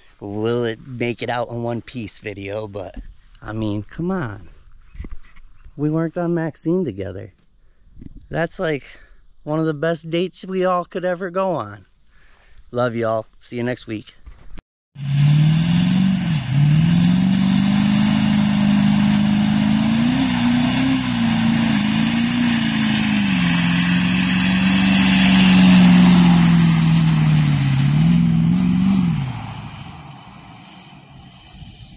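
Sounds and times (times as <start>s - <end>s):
engine held at high revs: 15.0s - 30.0s.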